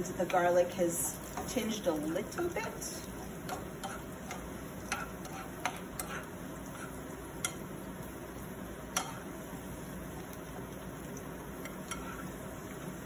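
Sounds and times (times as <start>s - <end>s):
spices sizzling in oil: 0.0s - 13.0s
utensil clicking against pan: 3.4s - 7.7s, 8.9s - 9.2s, 11.6s - 12.2s.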